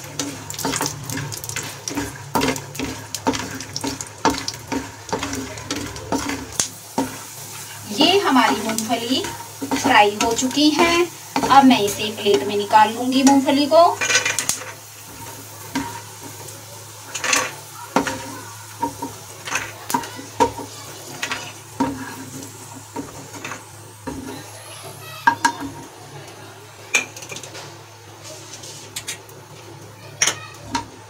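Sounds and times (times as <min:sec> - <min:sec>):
wooden spatula scraping frying pan: 0:00.0 - 0:24.5.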